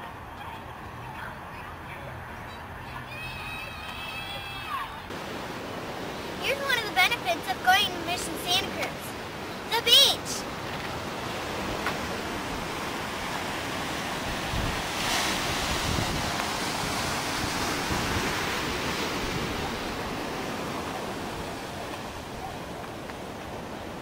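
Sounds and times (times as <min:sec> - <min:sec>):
ocean surf on beach: 0:02.8 - 0:24.0
wind buffeting microphone: 0:10.3 - 0:24.0.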